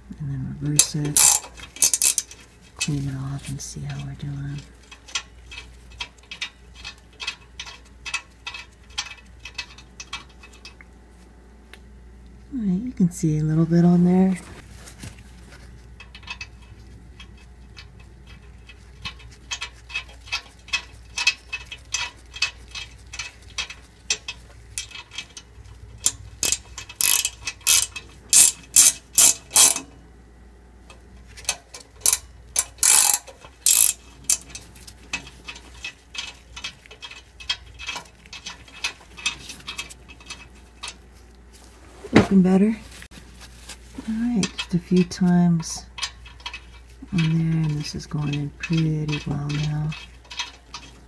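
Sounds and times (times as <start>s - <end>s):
ratcheting wrench clicking: 0.8s - 3.0s, 3.9s - 10.8s, 16.0s - 30.0s, 30.9s - 41.0s, 44.4s - 51.0s.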